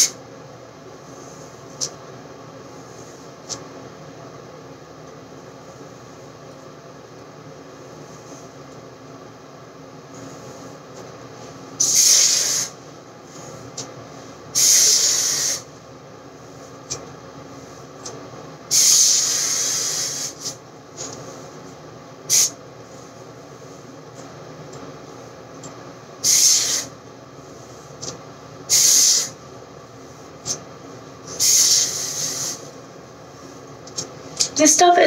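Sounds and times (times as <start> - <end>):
aerosol spray hissing: 11.8 - 12.8, 14.6 - 15.7, 18.7 - 20.6, 22.3 - 22.6, 26.2 - 26.9, 28.7 - 29.4, 31.3 - 32.7.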